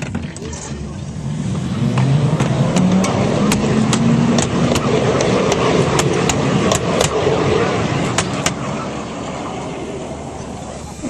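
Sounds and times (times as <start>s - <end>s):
wheels clicking over rail joints: 0.0s - 8.9s
miniature train rumbling past: 0.0s - 11.0s.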